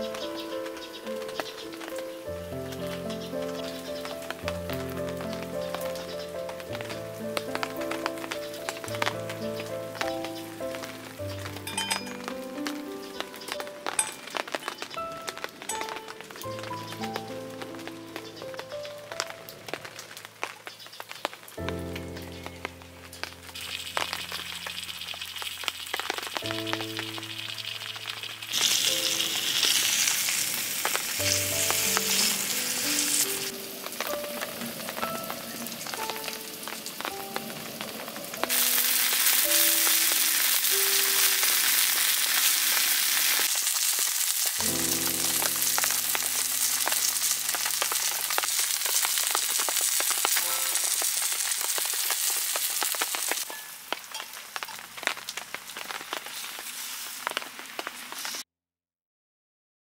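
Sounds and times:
background music: 0.0s - 20.1s, 21.6s - 24.8s, 26.4s - 30.1s, 31.1s - 42.1s, 44.6s - 48.9s
tofu sizzling in oil: 0.0s - 21.5s, 22.2s - 58.4s.

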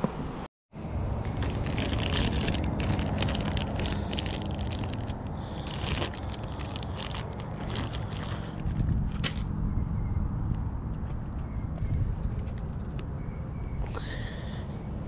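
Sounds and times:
plastic bag crinkling: 1.2s - 8.8s.

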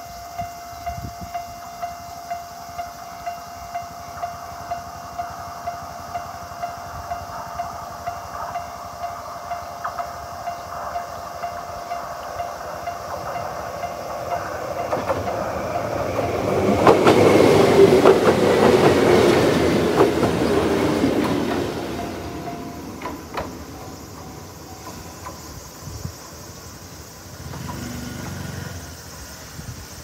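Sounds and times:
level crossing warning bell: 0.0s - 16.9s, 18.3s - 25.1s
train wheels clicking over rail joints: 0.0s - 30.0s.

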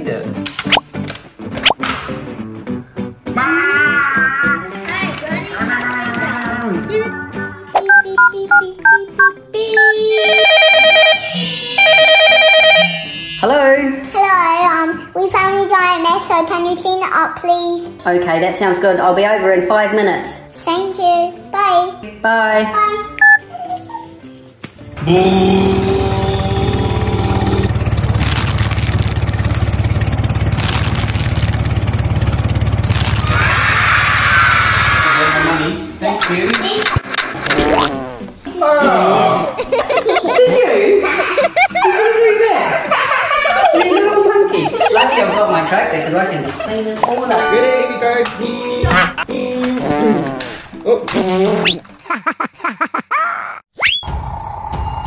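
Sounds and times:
trilling telephone ring: 10.2s - 13.2s
tractor engine chugging: 25.3s - 34.6s.

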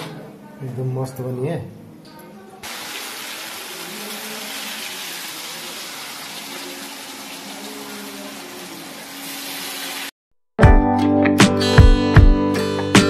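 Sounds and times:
oil sizzling while deep-frying: 2.6s - 10.2s.

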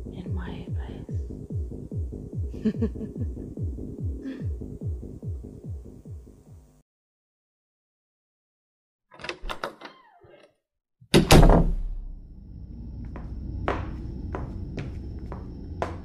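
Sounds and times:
low room drone: 0.0s - 6.8s, 11.7s - 16.0s
door creak: 9.1s - 12.1s
door shutting with thud: 9.2s - 9.9s, 11.1s - 12.2s
door latch clicks: 9.2s - 10.1s, 11.1s - 11.8s.

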